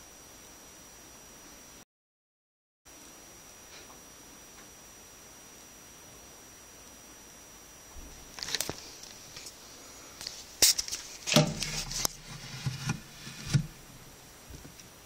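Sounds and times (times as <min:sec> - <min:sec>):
phone handling knocks and rubs: 0:11.3 - 0:13.8.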